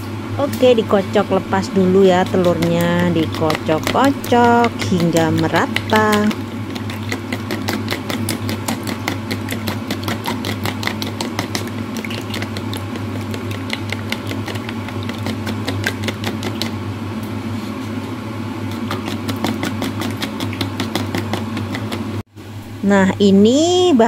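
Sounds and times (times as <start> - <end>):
steady low hum: 0.0 - 24.0
utensil clicking against bowl: 2.1 - 16.8, 18.7 - 22.1.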